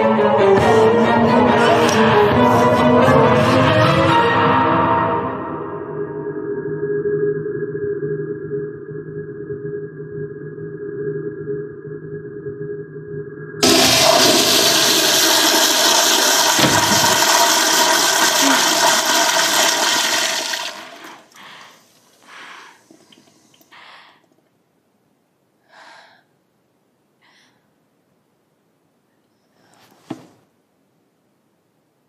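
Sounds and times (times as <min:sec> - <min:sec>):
water gurgles: 0:13.6 - 0:22.2
toilet flushing: 0:13.6 - 0:23.7.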